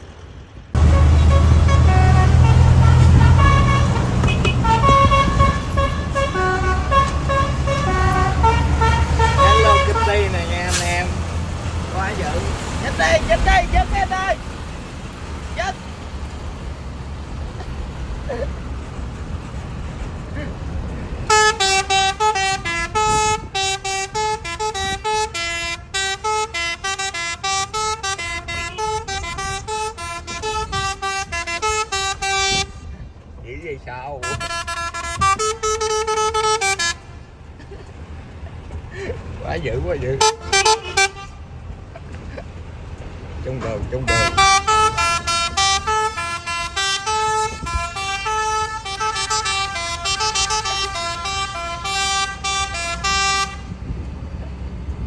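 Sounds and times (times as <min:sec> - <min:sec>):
heavy engine running: 0:00.0 - 0:33.4
musical truck horn: 0:00.7 - 0:11.2, 0:21.2 - 0:33.0, 0:34.2 - 0:37.3, 0:40.2 - 0:41.7, 0:44.0 - 0:53.8.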